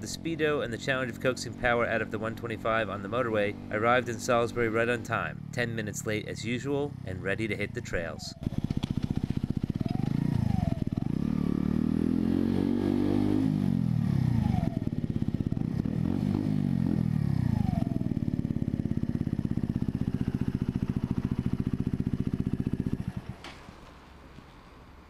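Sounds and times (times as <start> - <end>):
engine revving and idling: 0.0 - 23.4.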